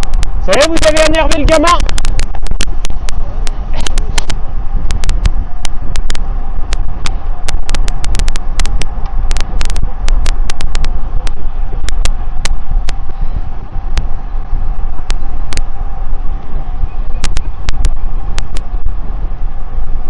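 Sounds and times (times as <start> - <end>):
digital crackles: 0.0 - 13.1
wind and riding noise: 0.0 - 20.0.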